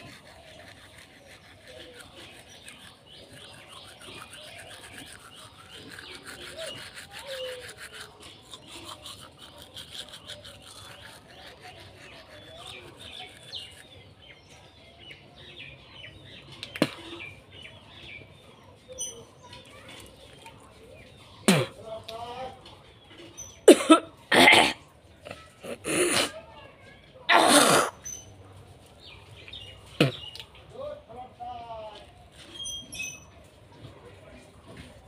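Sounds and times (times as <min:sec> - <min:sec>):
toothbrush scrubbing teeth: 0:00.0 - 0:14.6.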